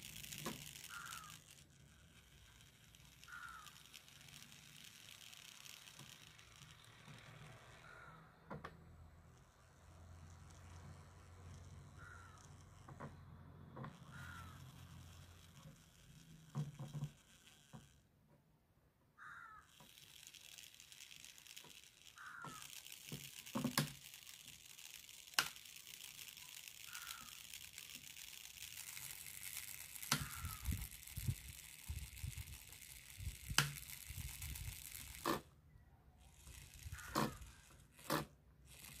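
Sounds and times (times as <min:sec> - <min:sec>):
small electric motor whirring: 0:00.0 - 0:18.3, 0:19.1 - 0:39.0
sharp handling clicks: 0:19.6 - 0:35.5.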